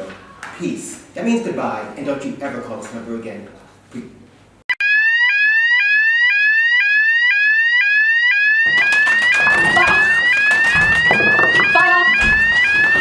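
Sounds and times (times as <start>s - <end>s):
fire alarm sweep tone: 4.8s - 13.0s.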